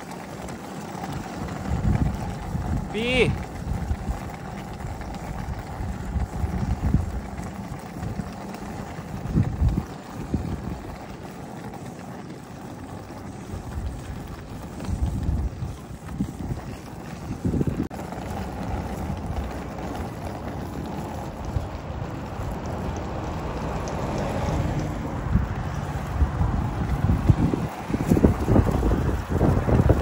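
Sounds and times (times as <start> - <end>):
wind buffeting microphone: 0.0 - 30.0.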